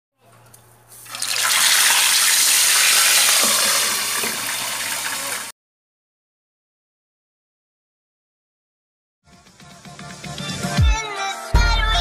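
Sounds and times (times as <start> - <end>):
fish sizzling in hot oil: 1.0 - 5.5.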